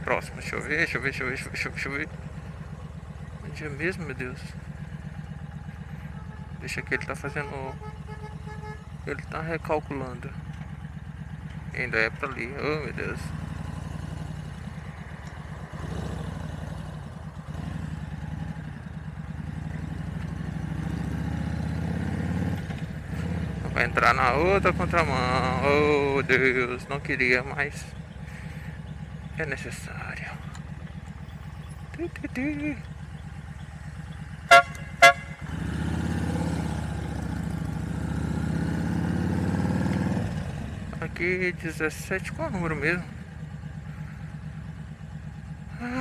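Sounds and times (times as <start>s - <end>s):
motorcycle engine running: 0.0s - 46.0s
vehicle horn toots: 6.0s - 9.0s, 34.4s - 35.6s.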